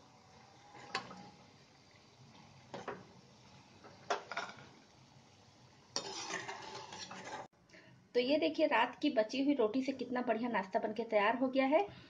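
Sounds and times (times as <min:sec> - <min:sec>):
faint sizzle of frying: 0:00.0 - 0:07.9.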